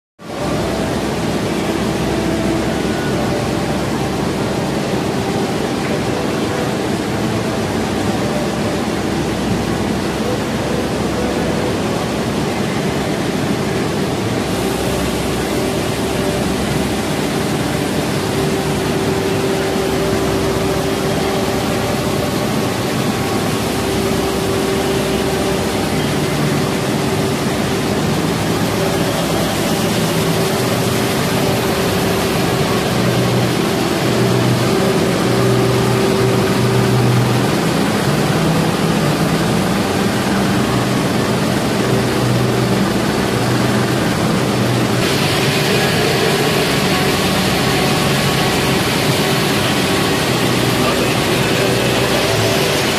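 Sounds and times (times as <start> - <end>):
quilting machinery running: 0.2 - 52.9.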